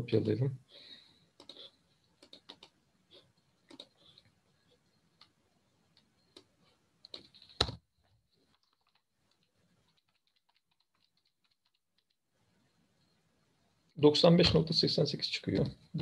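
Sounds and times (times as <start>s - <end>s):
keyboard typing: 1.3s - 7.8s, 8.4s - 12.2s.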